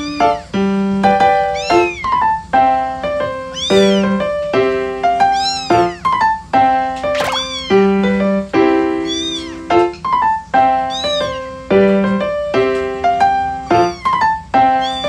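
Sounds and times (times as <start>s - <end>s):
kitten meowing: 0.0s - 2.4s, 3.3s - 4.4s, 5.1s - 6.4s, 7.1s - 8.2s, 8.9s - 10.1s, 10.7s - 11.8s, 13.4s - 15.0s
piano music: 0.0s - 15.0s.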